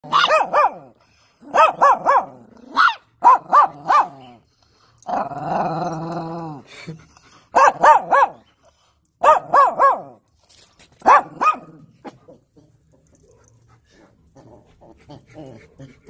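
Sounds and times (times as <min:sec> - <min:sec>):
dog barking: 0:00.0 - 0:00.9, 0:01.5 - 0:04.2, 0:07.6 - 0:08.4, 0:09.2 - 0:10.2, 0:11.0 - 0:11.8
dog growling call: 0:05.0 - 0:06.7, 0:14.3 - 0:16.0.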